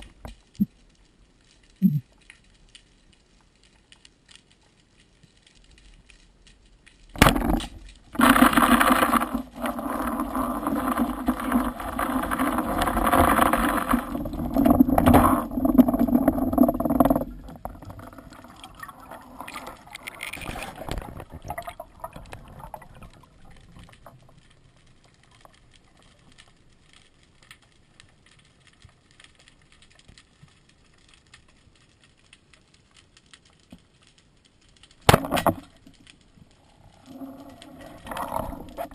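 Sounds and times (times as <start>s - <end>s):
churning bubbling water: 7.2s - 24.4s.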